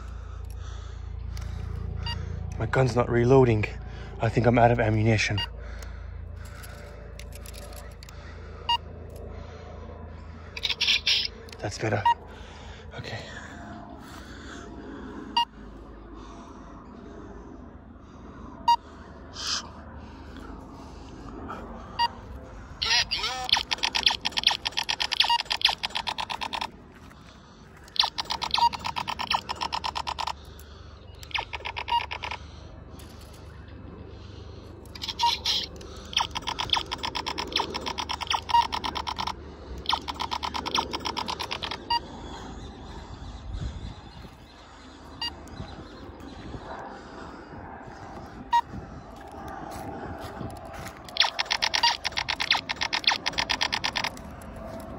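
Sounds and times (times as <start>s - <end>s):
outdoor background noise: 0.0s - 54.9s
toy laser blaster rapid fire: 22.9s - 26.8s, 27.9s - 30.4s, 31.2s - 32.4s, 34.9s - 42.0s, 51.1s - 54.4s
short electronic beeps: 23.0s - 26.7s, 28.0s - 30.4s, 31.2s - 32.4s, 35.0s - 42.1s, 51.2s - 54.1s.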